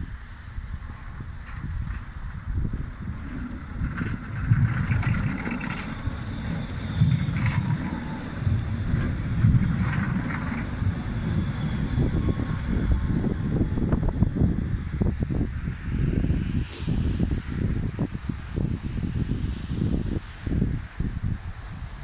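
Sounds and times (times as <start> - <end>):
tram drive noise: 0.0 - 22.0
tram wheels rumbling on rails: 0.0 - 22.0.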